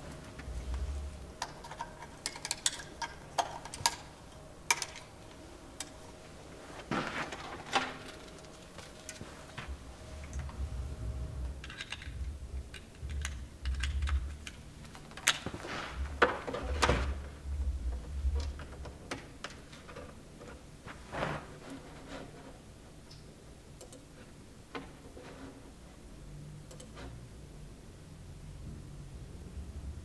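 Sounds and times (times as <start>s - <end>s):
cables rustling: 0.0s - 22.7s
cable connectors clicking and knocking: 0.1s - 6.0s, 11.5s - 20.6s.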